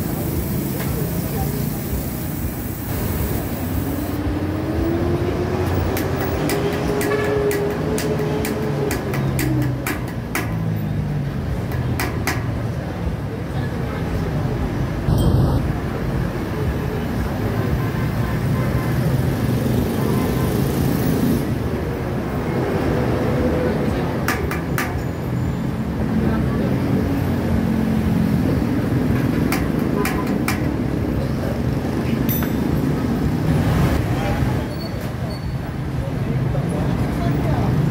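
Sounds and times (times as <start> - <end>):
road traffic rumble: 0.0 - 37.9
steady low rumble: 15.0 - 16.2.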